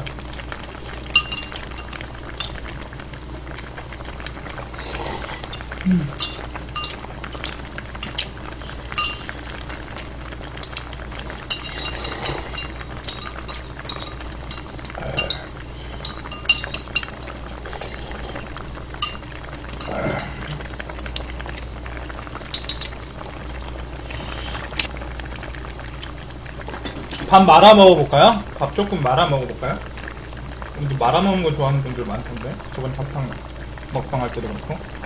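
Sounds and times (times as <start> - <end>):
steady low hum: 0.0 - 35.0
stew faintly simmering: 0.0 - 35.0
metal utensils clinking on bowl: 5.5 - 8.2, 9.0 - 9.3, 11.5 - 14.6, 15.2 - 17.1.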